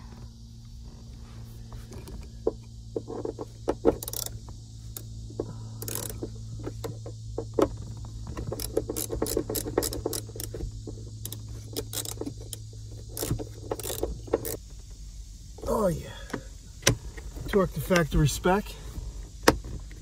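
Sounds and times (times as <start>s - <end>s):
hand ratchet clicking: 3.1s - 5.1s, 5.8s - 14.6s.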